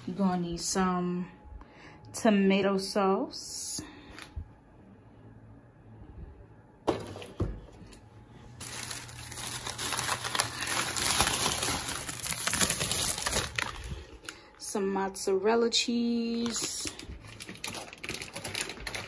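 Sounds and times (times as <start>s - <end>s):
plastic bag rustling: 8.4s - 14.6s, 16.3s - 19.0s.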